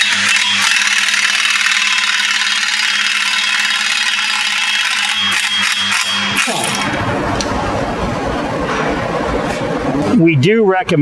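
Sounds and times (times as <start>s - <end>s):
power tool whining: 0.0s - 7.0s.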